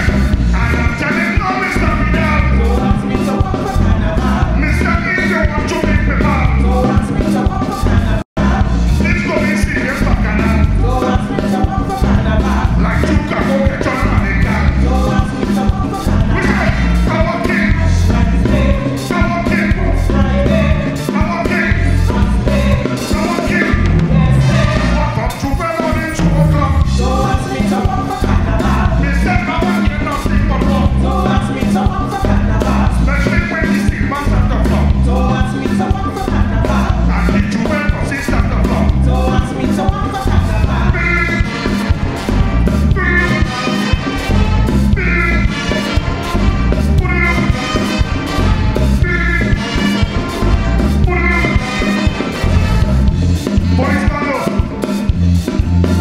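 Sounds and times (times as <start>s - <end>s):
man singing: 0.0s - 55.0s
drum beat: 0.0s - 56.0s
horns: 0.0s - 56.0s
live band music: 0.0s - 56.0s.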